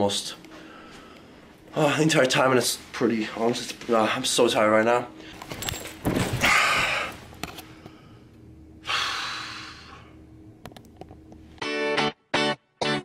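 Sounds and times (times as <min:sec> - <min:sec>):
guitar music: 0:11.5 - 0:13.0.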